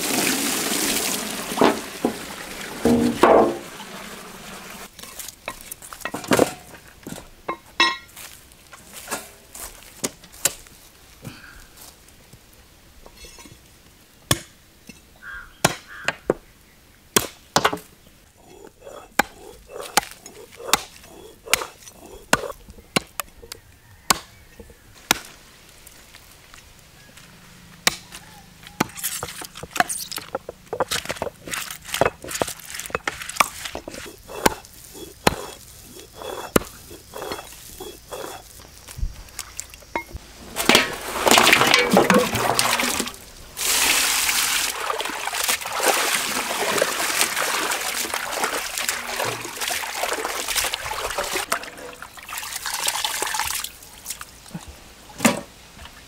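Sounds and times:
cleaver chopping meat on wood: 0:24.1 - 0:24.4, 0:33.9 - 0:38.4.

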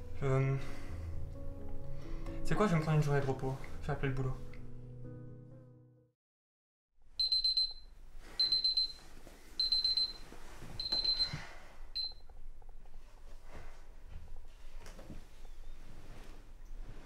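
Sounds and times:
alarm clock beeping: 0:07.2 - 0:09.0, 0:09.6 - 0:10.2, 0:10.8 - 0:11.4, 0:12.0 - 0:12.2.

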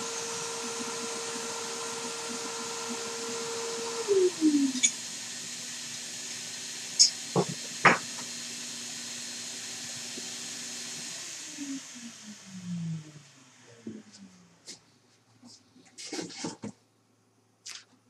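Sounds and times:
router spindle whining: 0:00.0 - 0:14.2.

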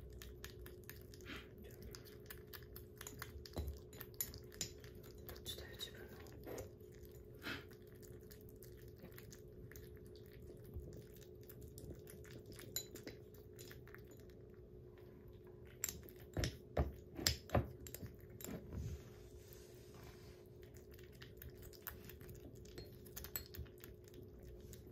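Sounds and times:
faint steady hum: 0:00.0 - 0:24.9
kittens lapping and chewing: 0:00.0 - 0:24.9
spoon clinking on ceramic bowl: 0:02.9 - 0:05.9, 0:12.5 - 0:14.3, 0:22.6 - 0:23.9.

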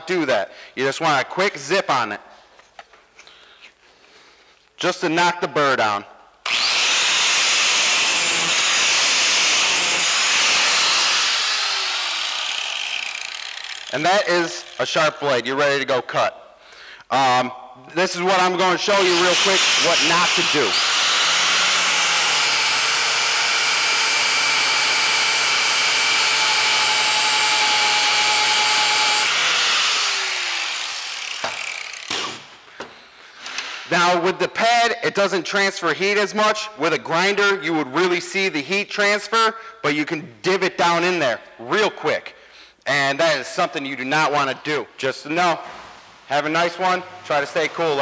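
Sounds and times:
motor winding down: 0:06.5 - 0:13.9, 0:19.6 - 0:32.3
angle grinder grinding steel: 0:06.5 - 0:14.8, 0:19.0 - 0:32.5.

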